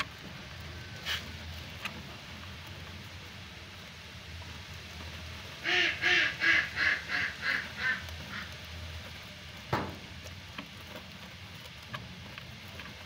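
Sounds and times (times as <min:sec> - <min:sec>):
duck quacking: 0:05.6 - 0:08.5.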